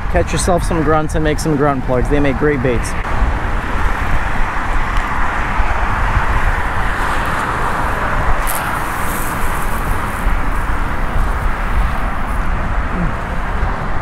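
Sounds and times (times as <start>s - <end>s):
traffic hum: 0.0s - 14.0s
wind buffeting microphone: 0.0s - 14.0s.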